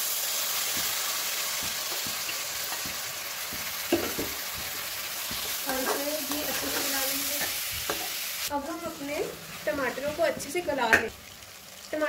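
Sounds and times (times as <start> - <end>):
tomatoes sizzling in hot oil: 0.0 - 12.0
spoon knocking against pan: 1.6 - 8.1
metal spoon scraping pan: 3.7 - 8.2.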